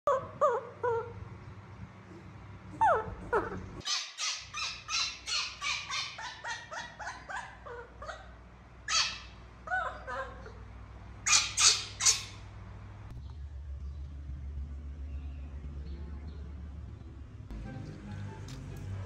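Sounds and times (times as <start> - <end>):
young monkey crying: 0.1 - 1.2, 2.7 - 12.4.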